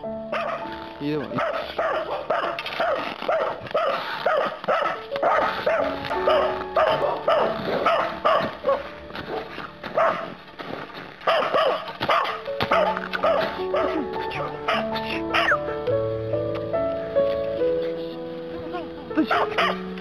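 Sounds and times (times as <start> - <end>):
background music: 0.0 - 20.0
dog barking: 0.3 - 0.7, 1.3 - 10.4, 11.2 - 15.6, 19.2 - 19.9.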